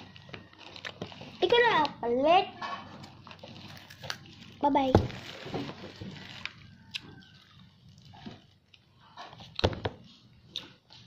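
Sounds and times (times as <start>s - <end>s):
chewing and mouth sounds: 6.1s - 11.0s.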